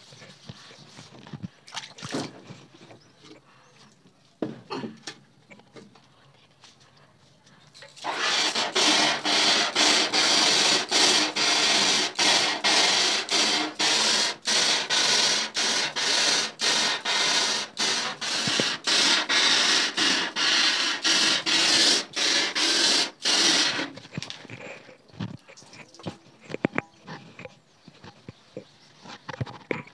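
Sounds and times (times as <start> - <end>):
water jet hissing on screen: 8.0 - 24.0.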